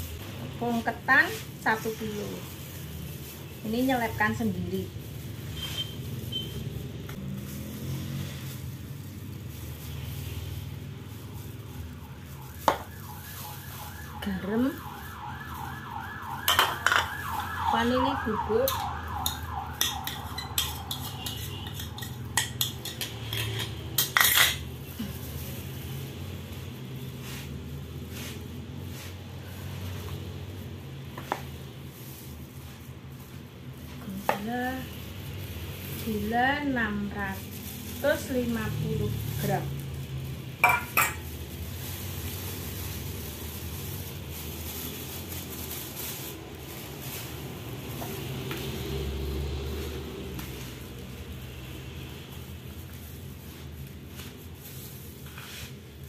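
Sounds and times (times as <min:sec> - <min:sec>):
sugar pouring hiss: 0:00.0 - 0:15.0, 0:18.8 - 0:56.0
utensils clattering: 0:19.8 - 0:24.7.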